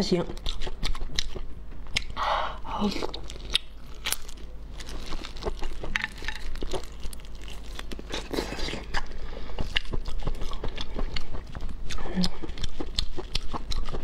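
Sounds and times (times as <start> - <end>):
wet chewing: 0.1 - 2.2, 2.8 - 14.0
plastic gloves crinkling: 3.0 - 10.0.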